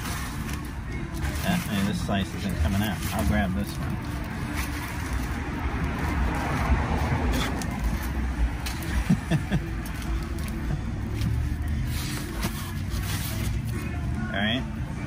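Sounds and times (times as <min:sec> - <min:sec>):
street traffic rumble: 0:00.0 - 0:15.0
vehicle passing: 0:01.2 - 0:12.3.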